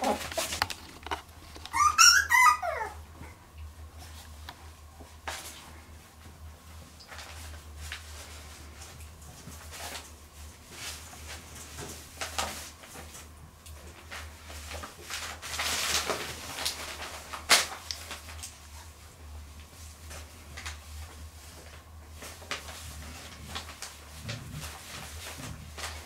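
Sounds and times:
scratches and rustling: 0:00.0 - 0:01.8
puppies scuffling: 0:00.0 - 0:26.0.

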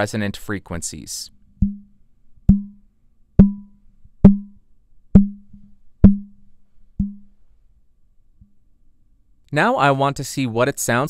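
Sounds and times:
fingertip taps on microphone: 0:01.6 - 0:01.9, 0:02.5 - 0:02.8, 0:07.0 - 0:07.3.

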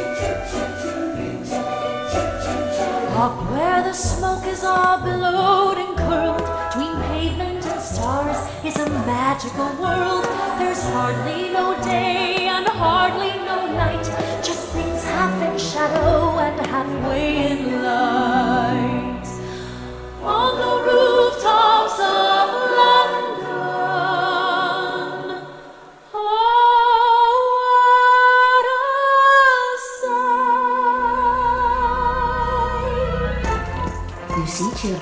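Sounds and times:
show music: 0:00.0 - 0:23.9, 0:31.0 - 0:35.0.

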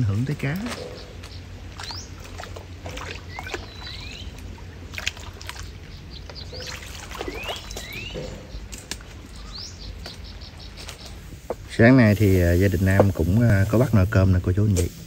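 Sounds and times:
water sloshing and splashing: 0:00.0 - 0:11.7
birds chirping: 0:00.0 - 0:14.8.

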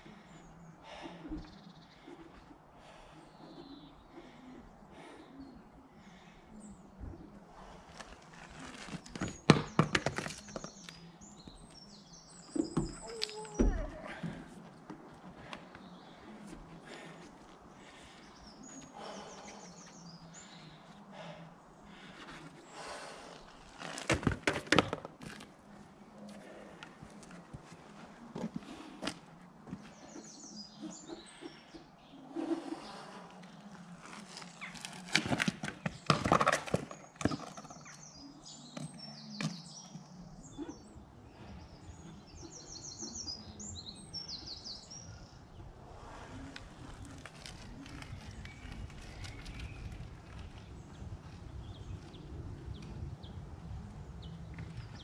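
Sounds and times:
small birds chirping: 0:00.0 - 0:23.8, 0:29.6 - 0:35.1, 0:36.8 - 0:55.0
unicycle crashing onto tarmac: 0:23.9 - 0:25.4.

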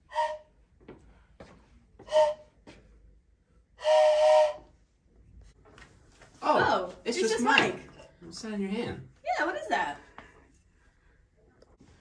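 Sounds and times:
train whistle blown by mouth: 0:00.0 - 0:00.6, 0:02.0 - 0:02.6, 0:03.8 - 0:04.8.

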